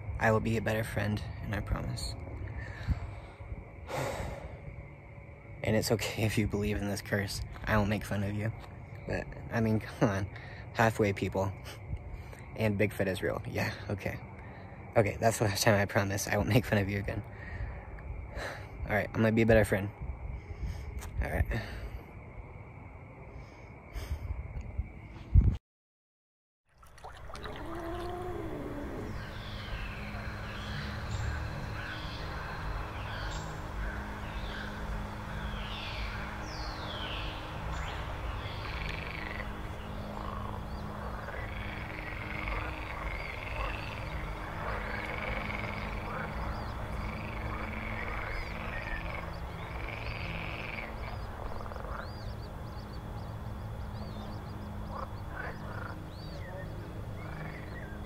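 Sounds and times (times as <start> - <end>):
low steady drone: 0.0 - 18.9, 27.4 - 58.0
frog-like croaks: 27.0 - 58.0
eerie animal calls: 27.2 - 58.0.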